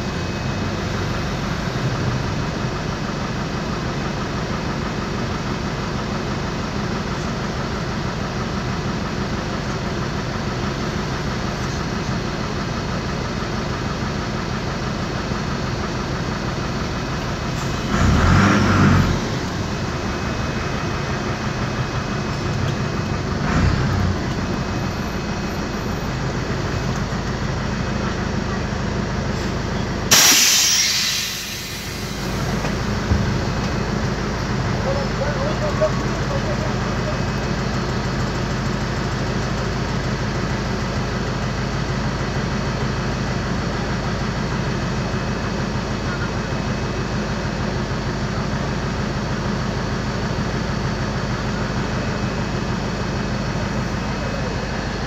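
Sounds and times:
diesel bus engine idling: 0.0 - 55.0
sudden loud air hiss: 30.1 - 32.6.

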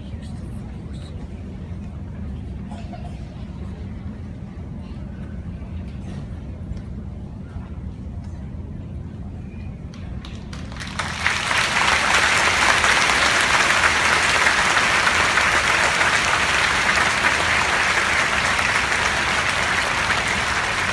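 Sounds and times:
crowd applauding: 10.2 - 20.9.

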